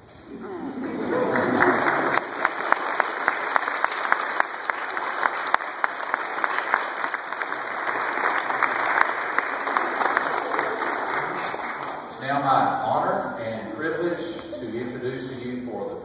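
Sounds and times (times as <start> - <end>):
crowd applauding: 0.4 - 12.8.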